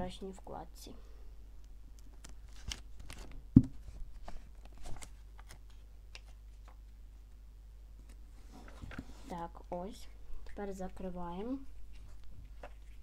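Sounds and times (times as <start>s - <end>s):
light clicks and paper rustles: 10.4s - 13.0s.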